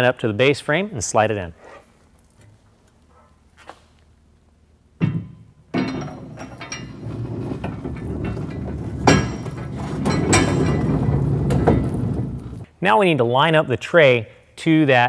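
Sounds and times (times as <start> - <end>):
loud metal clanks: 5.0 - 12.7
metal frame rattling and scraping: 5.0 - 12.7.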